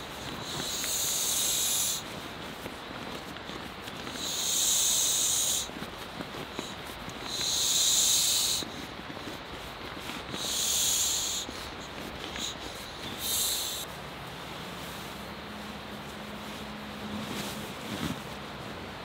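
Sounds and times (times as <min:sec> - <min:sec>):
air hissing out of valve: 0:07.3 - 0:08.6, 0:13.2 - 0:13.9.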